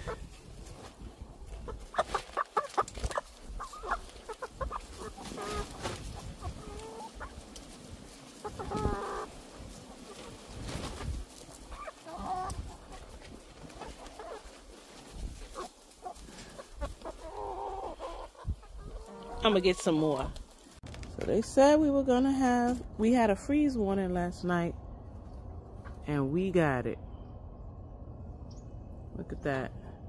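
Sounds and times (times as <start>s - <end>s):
chickens clucking: 0.0s - 20.7s, 25.1s - 26.1s
chicken squawk: 1.7s - 7.4s, 8.4s - 9.3s, 11.7s - 13.0s, 15.5s - 19.7s.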